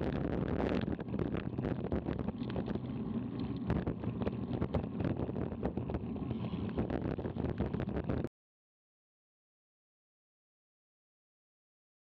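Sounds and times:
wind rushing over microphone: 0.0s - 8.3s.

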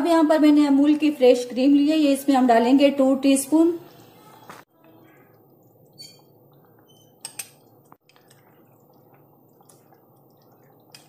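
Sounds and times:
gravy dripping and plopping: 5.2s - 11.0s.

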